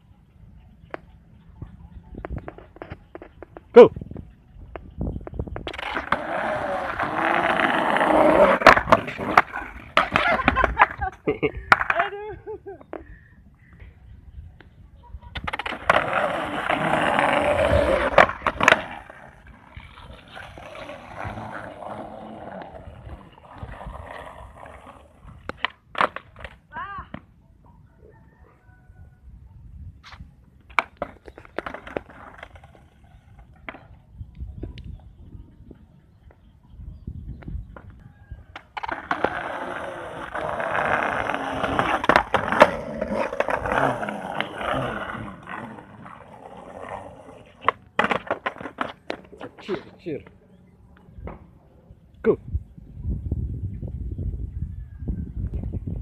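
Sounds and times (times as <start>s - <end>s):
skateboard wheels rolling on concrete: 0.0s - 56.0s
skateboard tail clacking: 4.7s - 12.2s, 15.3s - 27.3s, 30.6s - 34.1s, 37.7s - 50.4s
skateboard knocking on ground: 47.6s - 49.7s.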